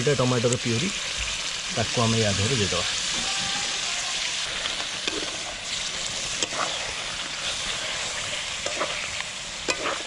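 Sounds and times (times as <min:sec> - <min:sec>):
food sizzling in metal pan: 0:00.0 - 0:10.0
metal spatula scraping pan: 0:06.3 - 0:09.1.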